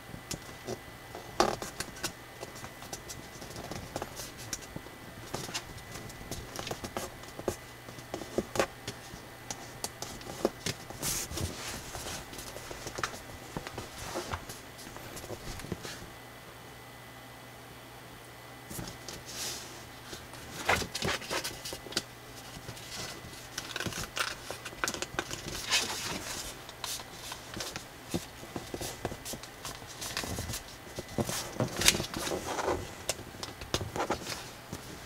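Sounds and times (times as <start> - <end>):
paper rustling and crackling: 0.3 - 16.1, 18.7 - 35.0.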